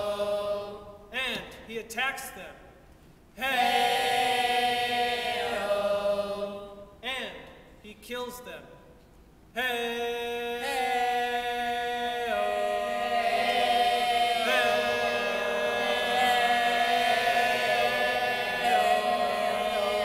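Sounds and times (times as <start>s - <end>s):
voices singing wordless chant: 0.0s - 1.1s, 3.4s - 7.0s, 9.6s - 20.0s.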